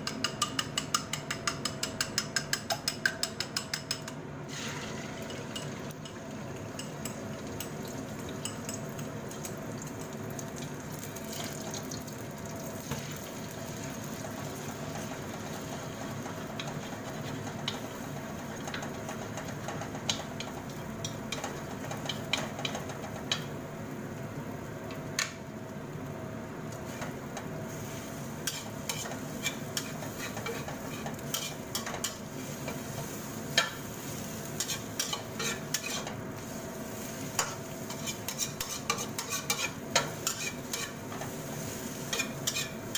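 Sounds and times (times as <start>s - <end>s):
utensils scraping and clicking on wok: 0.0s - 9.6s, 12.8s - 23.5s, 26.7s - 42.9s
eggs sizzling in hot oil: 4.5s - 42.9s.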